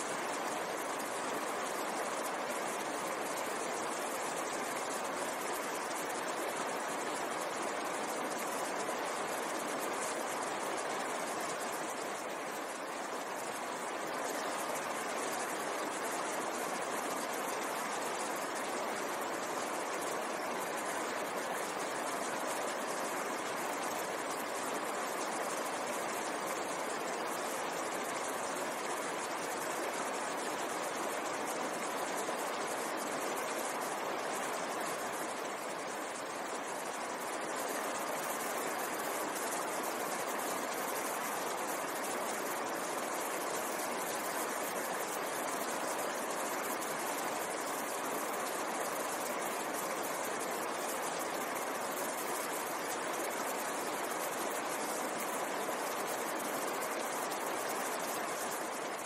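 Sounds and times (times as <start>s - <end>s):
stream rushing over boulders: 0.0s - 59.0s.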